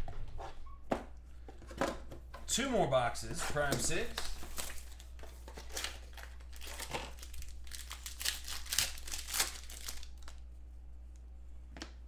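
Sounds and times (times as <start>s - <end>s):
plastic shrink-wrap crinkling: 3.6s - 10.5s.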